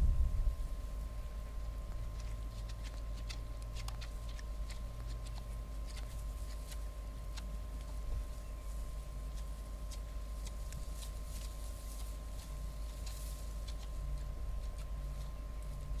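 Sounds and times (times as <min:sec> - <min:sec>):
low rumble: 0:00.0 - 0:02.2
thin high hum: 0:00.0 - 0:16.0
animals chewing and rooting: 0:00.5 - 0:16.0.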